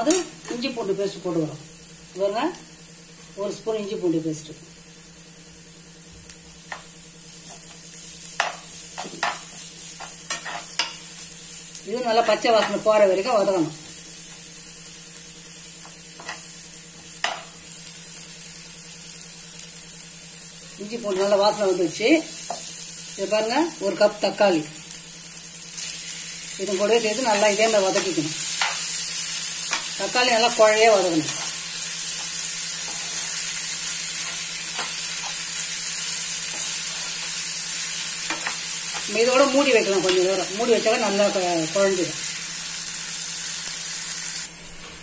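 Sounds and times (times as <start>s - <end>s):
onions sizzling in oil: 0.0s - 44.9s
metal spoon scraping a pan: 8.4s - 11.0s, 32.2s - 33.4s.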